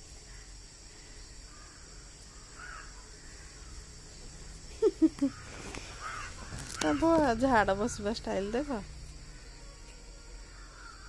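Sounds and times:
high insect buzz: 0.0 - 11.0
loud bird calls: 0.3 - 9.7, 10.4 - 11.0.

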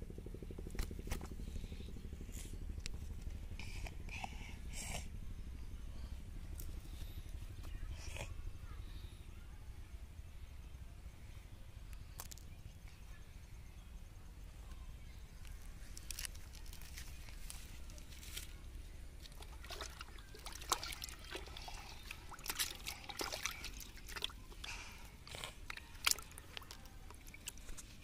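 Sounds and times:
water splashing in plastic tub: 19.2 - 24.7.

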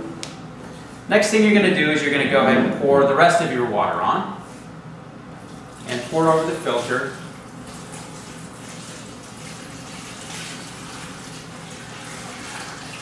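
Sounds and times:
water pouring and splashing: 5.7 - 13.0.

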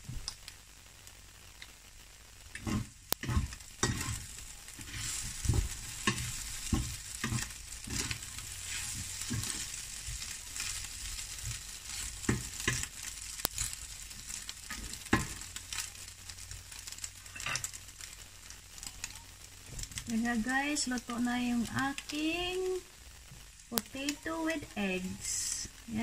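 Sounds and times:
potatoes and egg sizzling in a pan: 0.0 - 26.0
spatula scraping and knocking a pan: 2.6 - 12.9, 14.7 - 15.4.

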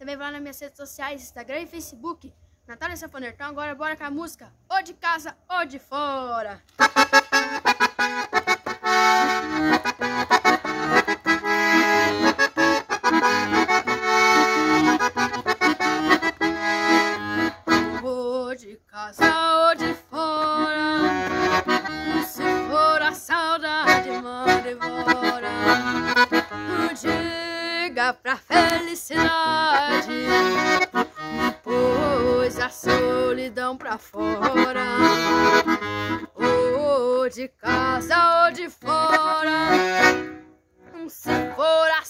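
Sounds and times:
piano accordion playing: 6.8 - 18.1, 19.2 - 27.8, 28.5 - 37.0, 37.6 - 42.0.

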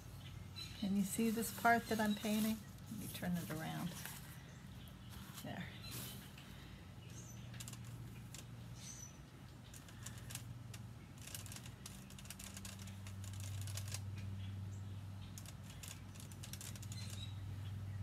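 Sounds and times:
paintbrush scratching on wood: 1.0 - 4.2.

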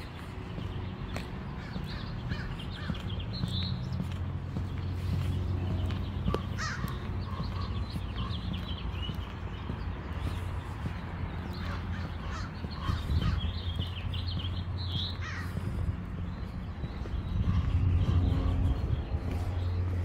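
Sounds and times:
crows cawing: 1.6 - 3.1, 6.3 - 8.4, 11.5 - 13.6, 15.0 - 15.7.

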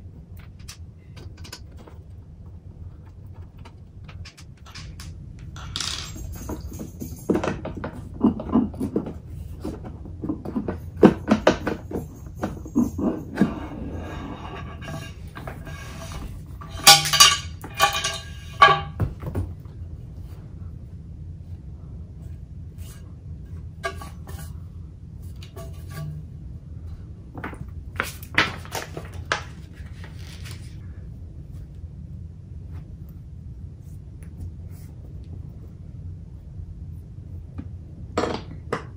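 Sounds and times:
steady low hum: 0.0 - 38.9
small knocks and clicks: 0.3 - 9.2
metal parts clicking and clinking: 3.4 - 7.8, 16.6 - 18.9
metal stand scraping: 12.4 - 19.0.

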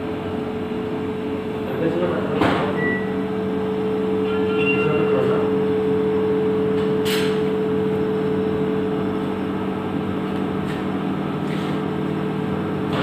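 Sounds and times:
low machine hum: 0.0 - 13.0.

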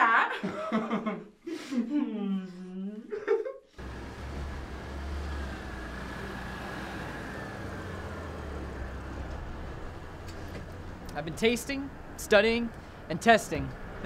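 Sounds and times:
car engine idling: 3.8 - 11.2.

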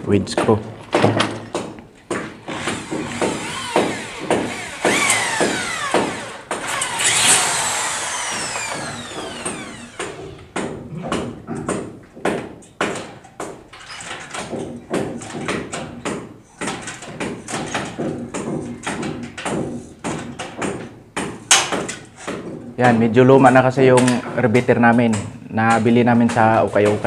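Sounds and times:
metal framing clicks and knocks: 0.0 - 7.4, 8.1 - 27.0
electric drill whirring: 2.4 - 10.6.

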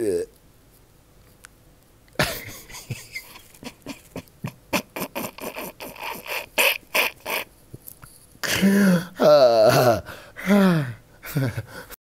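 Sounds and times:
man laughing hard: 2.2 - 7.5, 8.4 - 11.9.

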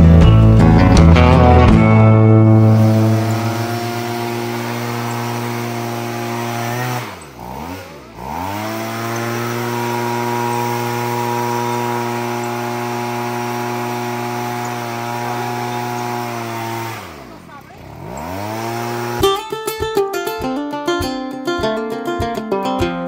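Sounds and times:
motor humming: 1.5 - 19.4.

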